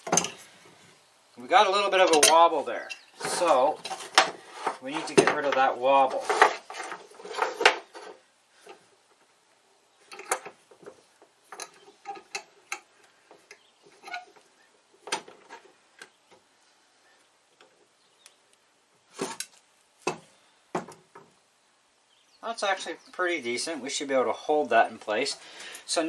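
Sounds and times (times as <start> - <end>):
metal clamp clinking: 2.0 - 3.1.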